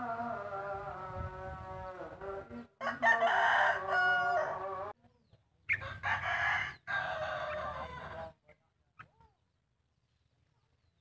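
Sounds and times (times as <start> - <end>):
rooster crowing: 2.8 - 4.9, 5.8 - 8.3.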